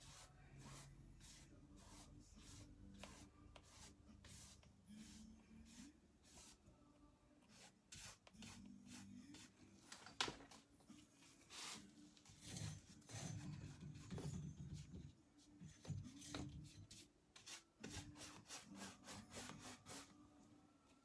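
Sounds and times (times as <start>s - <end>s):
paintbrush strokes: 0.0s - 6.6s, 7.4s - 9.6s, 10.9s - 14.1s, 14.7s - 20.1s.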